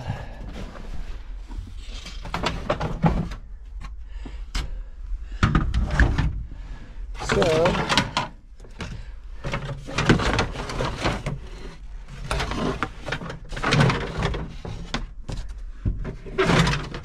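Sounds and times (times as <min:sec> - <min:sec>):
plastic panels clattering: 0:02.0 - 0:03.5, 0:07.2 - 0:17.0.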